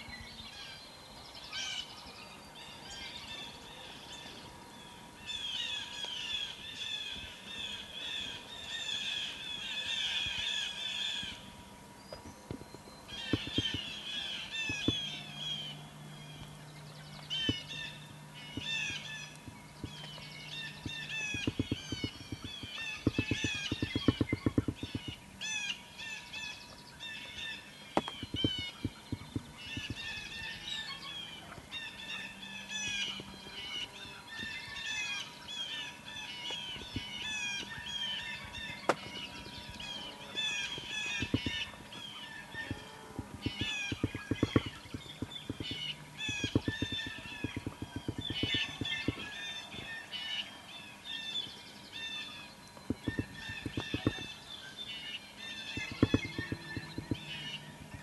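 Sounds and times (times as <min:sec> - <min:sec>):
songbirds singing: 0:00.0 - 0:58.0
low rapid pulsing: 0:12.6 - 0:25.3, 0:28.0 - 0:30.6, 0:36.7 - 0:50.0, 0:52.8 - 0:54.4, 0:55.8 - 0:58.0.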